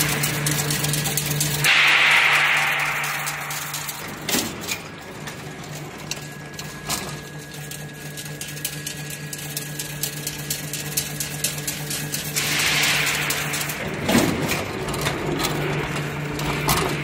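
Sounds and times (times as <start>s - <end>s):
machine motor hum: 0.0s - 17.0s
mechanism clicks and knocks: 0.0s - 17.0s.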